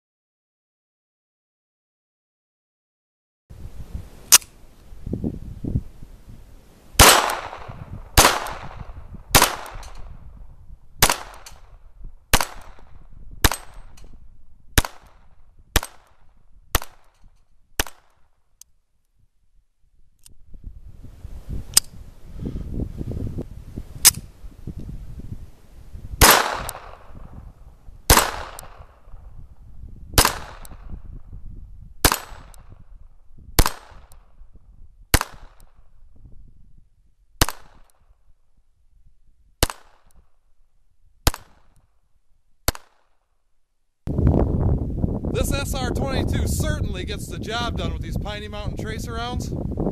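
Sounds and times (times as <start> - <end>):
pistol shots: 7.0 - 10.1, 11.0 - 11.7, 12.3 - 14.0, 14.8 - 17.2, 17.8 - 18.2, 26.2 - 27.3, 28.1 - 29.0, 30.2 - 30.9, 32.0 - 32.8, 33.6 - 34.3, 35.1 - 35.8, 37.4 - 38.1, 39.6 - 40.2, 41.2 - 41.8, 42.7 - 43.2.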